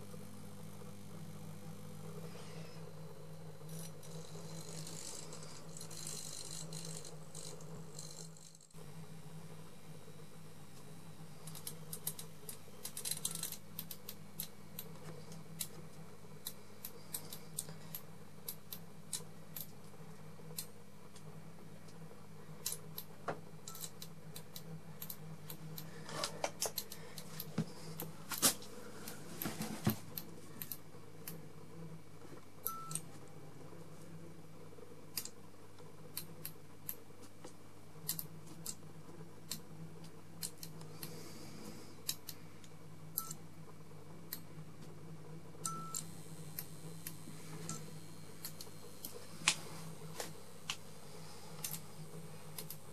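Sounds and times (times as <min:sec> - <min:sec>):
fluorescent lamp ballast hum: 0:00.0 - 0:52.9
sharp clicks and crackles: 0:11.4 - 0:22.0.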